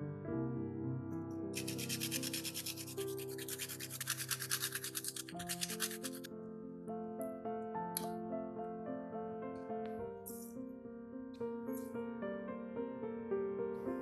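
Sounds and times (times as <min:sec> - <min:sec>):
garlic rasping on metal grater: 0:01.6 - 0:06.3.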